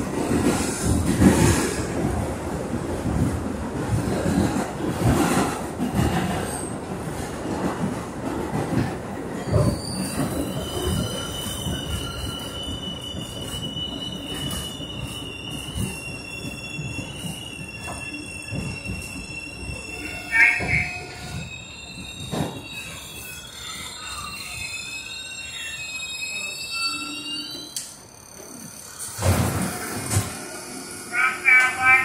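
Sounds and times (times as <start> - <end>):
subway wheels rumbling and clacking: 0.0 - 32.0
high-pitched wheel squeal: 9.5 - 29.0.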